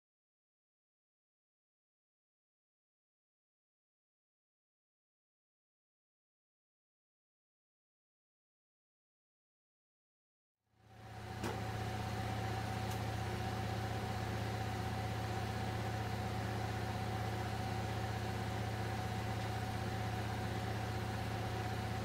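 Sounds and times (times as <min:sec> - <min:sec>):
low mechanical hum: 0:10.8 - 0:22.0.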